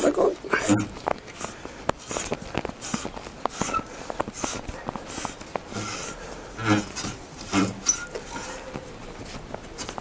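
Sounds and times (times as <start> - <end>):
metal bolt clicking and scraping: 3.5 - 8.7.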